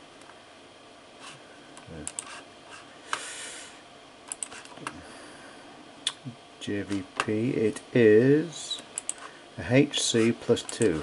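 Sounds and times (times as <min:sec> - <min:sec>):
short breathy hiss: 0:03.0 - 0:03.8
computer keyboard clicks: 0:04.3 - 0:04.7.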